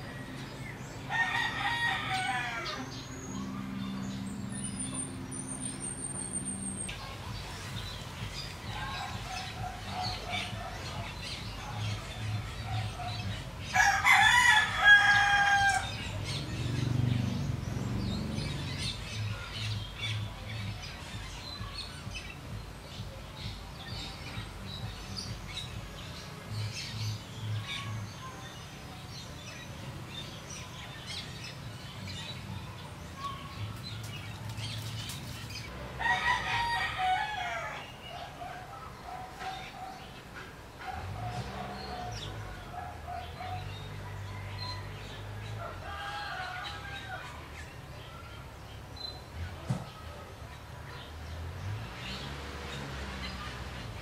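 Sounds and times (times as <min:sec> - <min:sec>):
rooster crowing: 0:01.1 - 0:03.0, 0:13.7 - 0:16.2, 0:36.0 - 0:37.9, 0:44.1 - 0:47.4.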